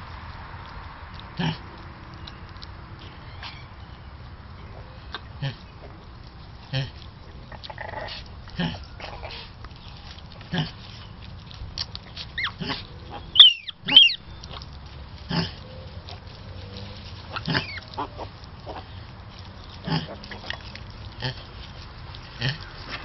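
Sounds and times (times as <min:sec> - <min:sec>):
pigs grunting: 0:01.2 - 0:01.9, 0:04.6 - 0:09.6, 0:10.5 - 0:11.1, 0:12.1 - 0:23.0
piglets squealing: 0:12.4 - 0:14.6, 0:17.3 - 0:18.9.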